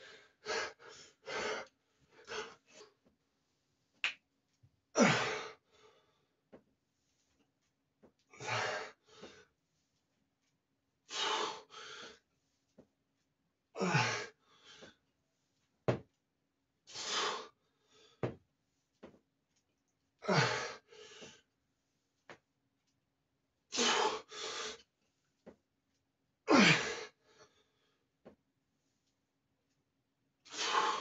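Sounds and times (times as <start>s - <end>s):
man breathing forcefully: 0.0s - 2.7s, 8.4s - 9.4s, 11.1s - 12.2s, 16.9s - 18.3s, 20.2s - 21.4s, 23.8s - 24.8s, 26.5s - 27.6s, 30.5s - 31.0s
man grunting: 5.0s - 5.4s, 26.5s - 27.0s.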